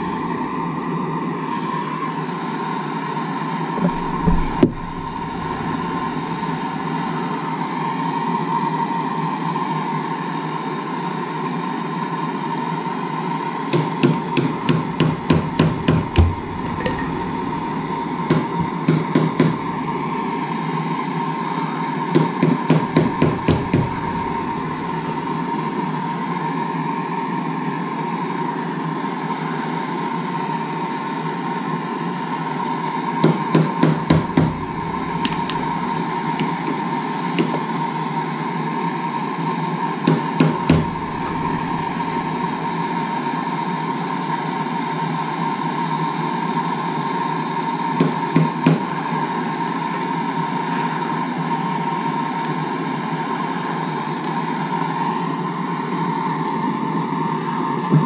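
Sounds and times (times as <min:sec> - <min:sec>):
gas torch hissing: 0:00.0 - 0:08.2, 0:13.7 - 0:26.2, 0:32.9 - 0:37.7, 0:39.8 - 0:43.4.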